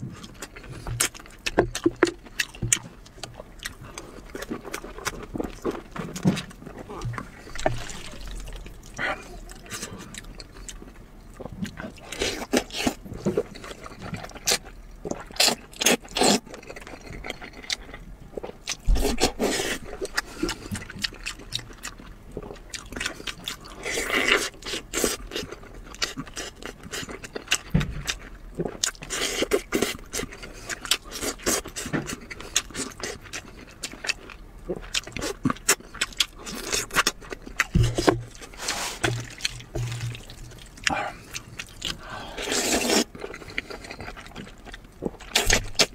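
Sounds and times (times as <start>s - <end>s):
wet chewing: 0.0s - 45.9s
slurping noodles: 37.8s - 43.8s.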